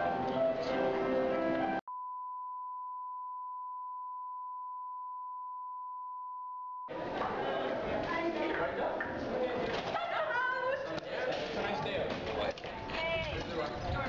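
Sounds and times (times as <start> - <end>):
music: 0.0 - 1.8
steady test tone beep: 1.9 - 6.9
people chattering: 6.9 - 14.0.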